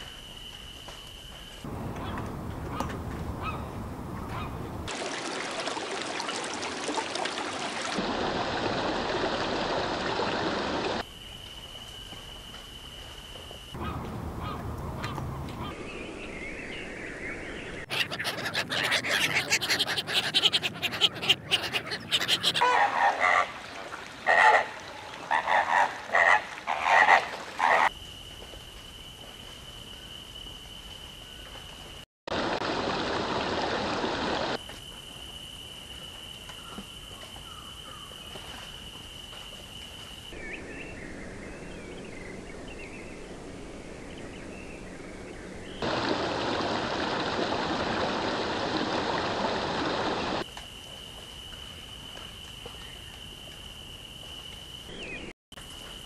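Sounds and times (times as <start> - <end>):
ducks quacking: 17.9 - 23.6.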